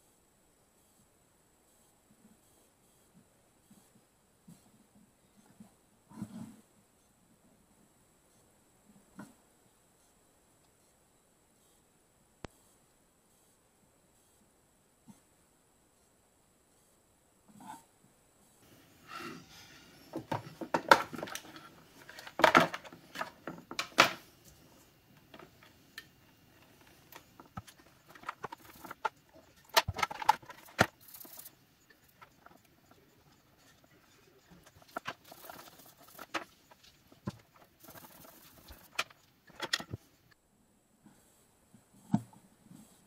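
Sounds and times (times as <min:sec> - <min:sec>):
plastic parts clicking and clattering: 0:20.1 - 0:40.1.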